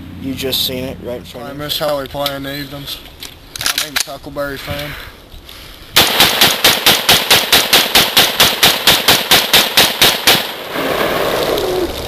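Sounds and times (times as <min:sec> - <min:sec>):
rapid rifle shots: 0:06.0 - 0:10.6.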